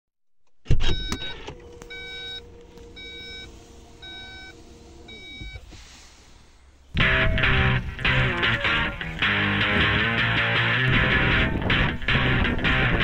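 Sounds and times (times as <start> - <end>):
car warning chime beeping: 0.8 - 5.8.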